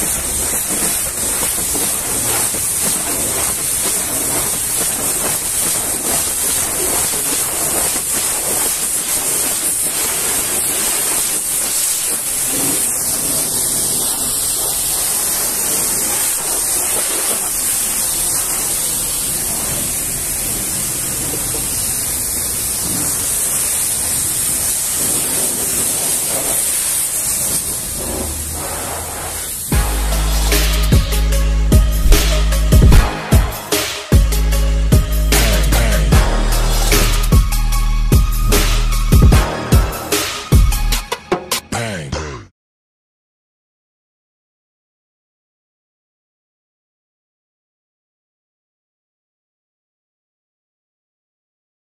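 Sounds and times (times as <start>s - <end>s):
pressure washer spraying water: 0.0s - 41.3s.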